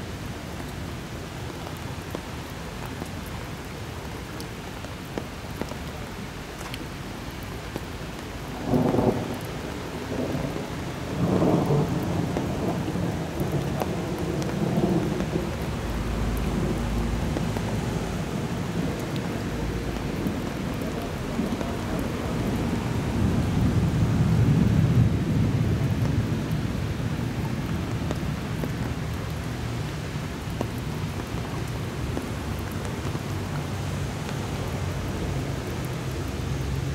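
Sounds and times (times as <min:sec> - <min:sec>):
steady rain: 0:00.0 - 0:36.9
rolling thunder: 0:10.0 - 0:15.5.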